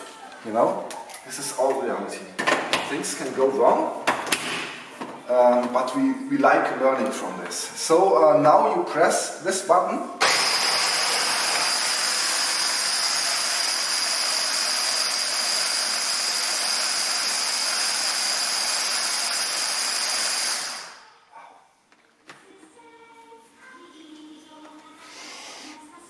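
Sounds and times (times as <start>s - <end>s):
hand blender whining: 10.2s - 21.1s.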